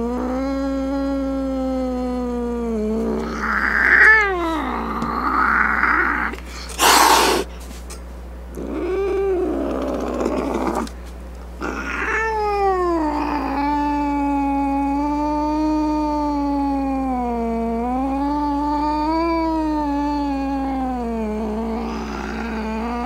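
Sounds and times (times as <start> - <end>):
cat hissing: 0.0 - 7.8, 8.6 - 11.0, 11.6 - 17.3, 17.9 - 23.0
cat yowling: 3.0 - 7.5, 11.6 - 23.0.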